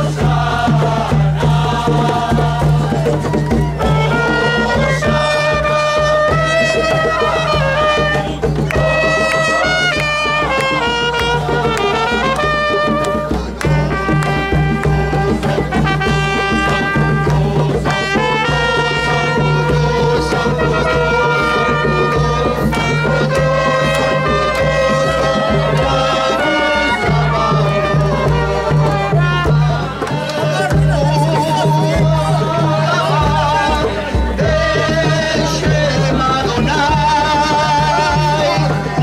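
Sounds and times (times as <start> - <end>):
crowd singing: 0.0 - 39.0
steady beat: 0.0 - 39.0
trumpets playing a hymn tune: 3.8 - 29.8.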